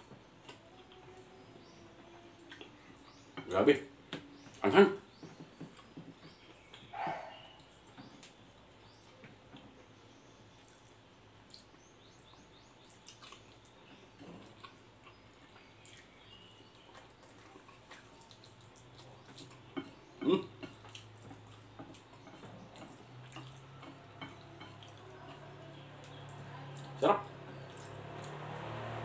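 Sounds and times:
person chewing: 0:02.4 - 0:03.1, 0:12.9 - 0:25.4.

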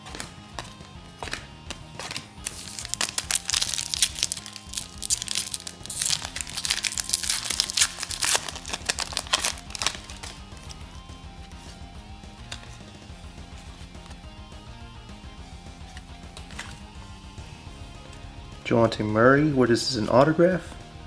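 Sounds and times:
background music: 0:00.0 - 0:21.0
foil wrapper crinkling and tearing: 0:02.4 - 0:10.8.

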